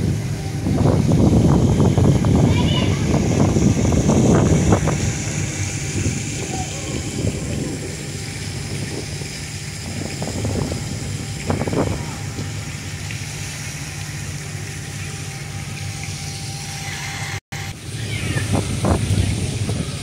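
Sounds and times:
low engine rumble: 0:00.0 - 0:20.0
faint voices: 0:02.3 - 0:08.2, 0:11.3 - 0:12.8.

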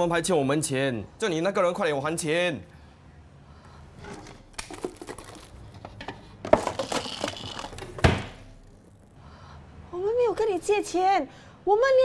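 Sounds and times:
objects rustling and clattering: 0:03.9 - 0:08.6.

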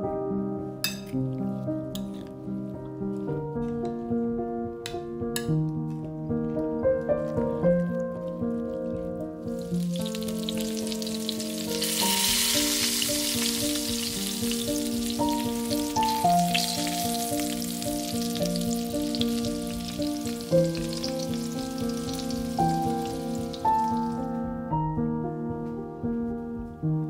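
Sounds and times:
light background music: 0:00.0 - 0:27.0
food sizzling in hot oil: 0:09.5 - 0:24.2.

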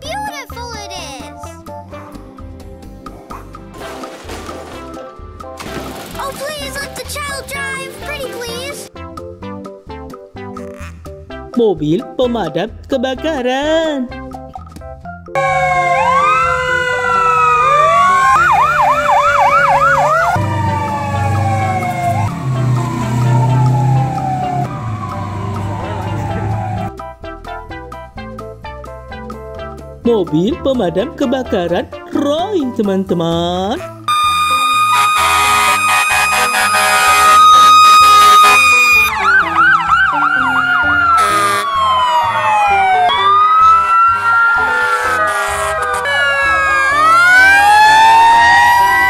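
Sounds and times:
background music with bass: 0:00.0 - 0:49.0
fire engine sirens wailing: 0:15.4 - 0:27.0, 0:34.1 - 0:49.0
low engine rumble: 0:20.4 - 0:26.9.

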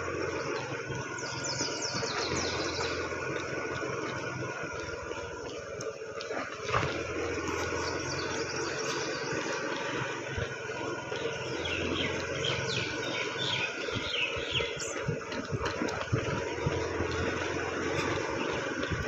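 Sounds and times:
rumbling wind and road noise: 0:00.0 - 0:19.0
bird chirping: 0:00.1 - 0:06.0, 0:07.2 - 0:15.4.

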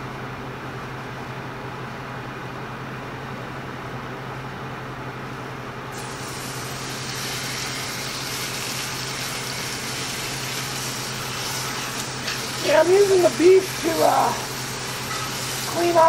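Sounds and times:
meat sizzling in a frying pan: 0:05.9 - 0:16.0.

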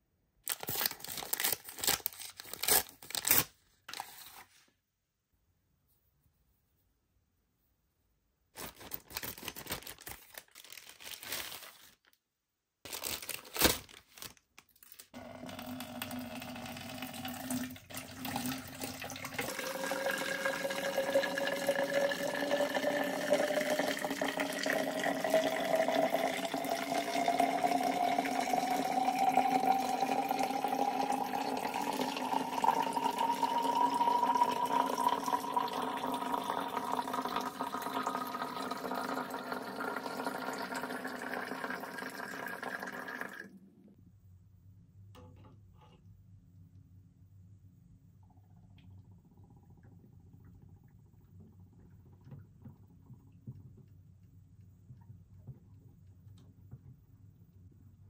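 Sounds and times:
plastic packaging crinkling: 0:00.4 - 0:04.5, 0:08.6 - 0:12.2, 0:12.8 - 0:15.2
water running into container: 0:15.2 - 0:43.5.

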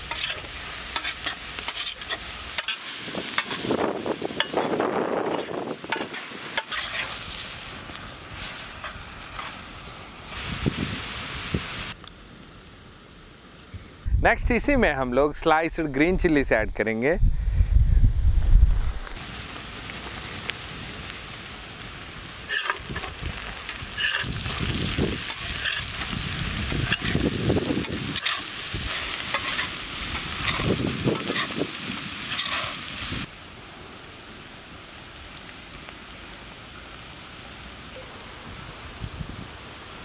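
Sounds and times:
metal spatula scraping iron: 0:00.0 - 0:03.6, 0:22.5 - 0:23.1, 0:24.0 - 0:24.3, 0:25.3 - 0:25.9, 0:26.8 - 0:27.2, 0:28.2 - 0:29.7, 0:32.3 - 0:32.8
onions sizzling in oil: 0:00.0 - 0:13.9, 0:18.7 - 0:40.0.

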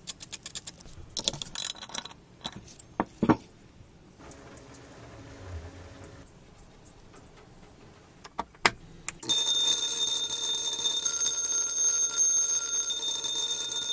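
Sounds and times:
electric bell ringing: 0:09.2 - 0:13.9.

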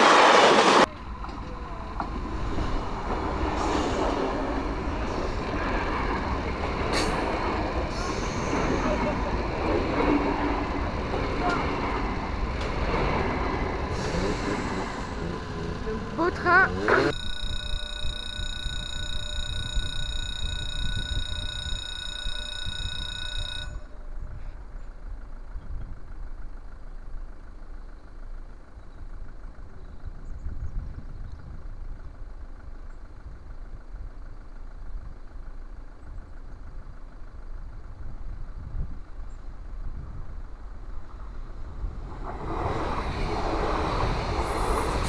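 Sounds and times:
road traffic: 0:00.0 - 0:45.0
wind rumble: 0:00.0 - 0:45.0
level-crossing warning bell: 0:13.9 - 0:25.3.

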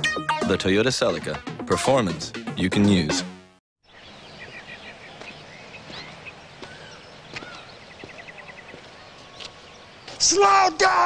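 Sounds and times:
small birds chirping: 0:03.8 - 0:11.0.

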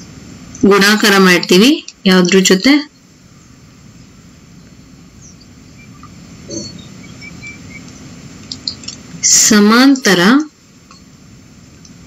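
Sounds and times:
low steady hum: 0:00.0 - 0:12.0
faint high chirps: 0:04.6 - 0:09.0.

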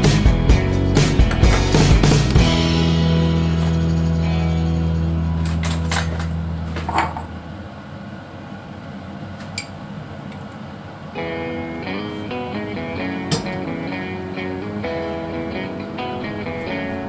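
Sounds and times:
guitar music: 0:00.0 - 0:06.7, 0:11.2 - 0:17.0.

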